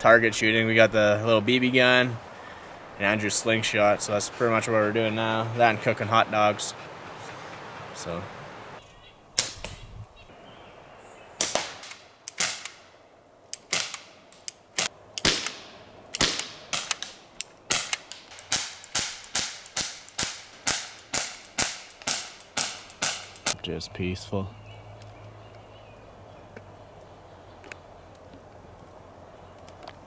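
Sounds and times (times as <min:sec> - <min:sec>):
slingshot shots: 0:09.4 - 0:09.9, 0:11.4 - 0:12.9, 0:13.6 - 0:23.6
bb pistol shots: 0:11.4 - 0:12.9, 0:13.6 - 0:14.2, 0:14.8 - 0:23.6.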